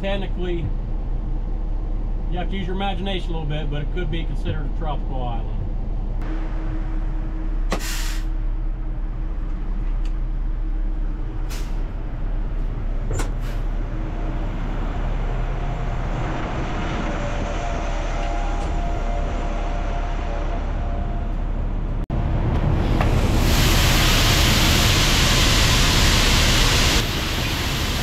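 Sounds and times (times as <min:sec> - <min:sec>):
air brake burst: 0:07.7 - 0:08.4, 0:11.4 - 0:11.9, 0:13.2 - 0:13.7.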